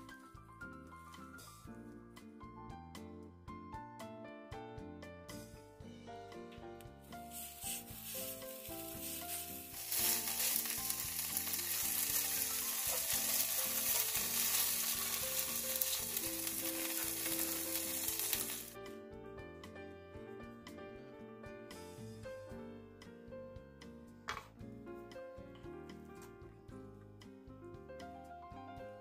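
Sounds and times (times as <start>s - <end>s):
background music: 0.0s - 29.0s
food sizzling in hot oil: 7.1s - 18.8s.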